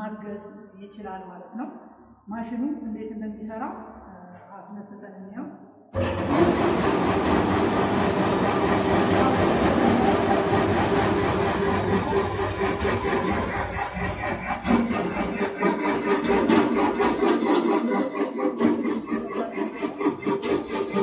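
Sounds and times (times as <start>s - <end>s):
machine droning and rattling: 6.0s - 21.0s.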